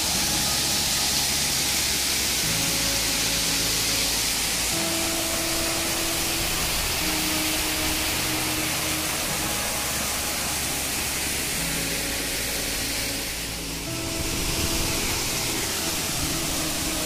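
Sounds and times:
soft background music: 0:00.0 - 0:17.0
waterfall rushing: 0:00.0 - 0:17.0.

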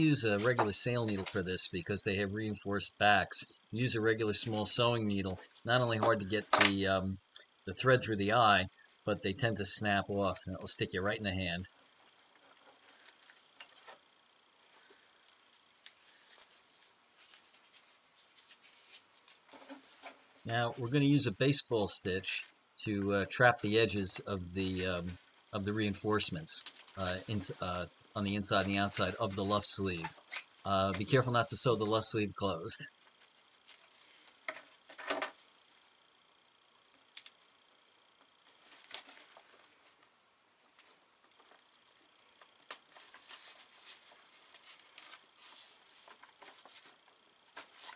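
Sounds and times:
sailcloth rustling: 0:15.6 - 0:20.9.

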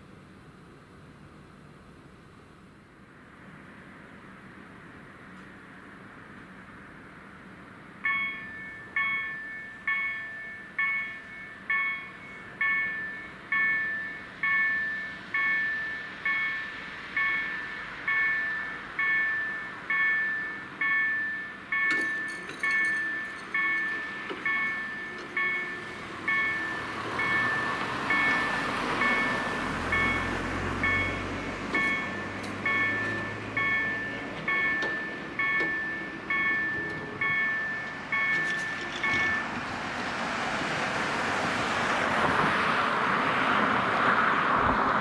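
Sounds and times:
level crossing bell ringing: 0:08.1 - 0:39.6
car passing: 0:25.4 - 0:34.6, 0:39.1 - 0:45.0.

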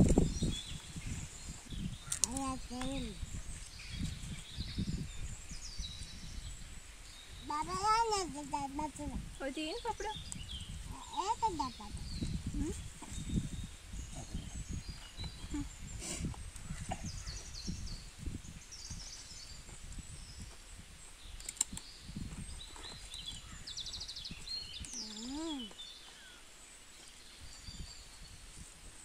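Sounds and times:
birds chirping and calling: 0:00.0 - 0:18.1, 0:22.6 - 0:26.5.

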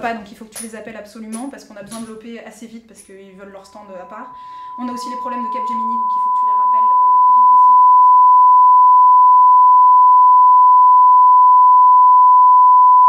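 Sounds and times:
steady electronic beep: 0:03.6 - 0:13.0.

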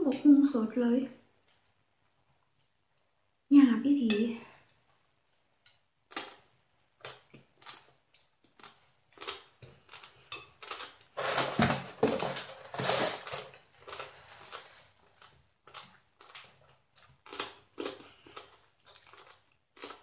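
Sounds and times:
crunchy chewing: 0:06.1 - 0:11.6, 0:12.6 - 0:20.0
paper napkin rustling: 0:11.2 - 0:13.4.

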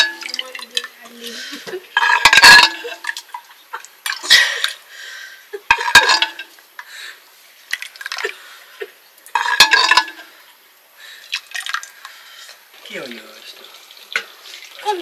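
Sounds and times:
metal pots clanking and scraping: 0:00.0 - 0:04.8, 0:05.6 - 0:06.6, 0:09.3 - 0:10.5, 0:11.6 - 0:15.0.

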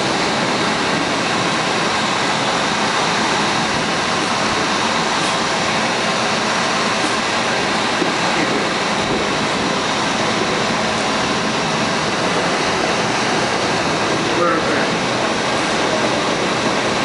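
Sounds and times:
subway car wheels rumbling on rails: 0:00.0 - 0:17.0.

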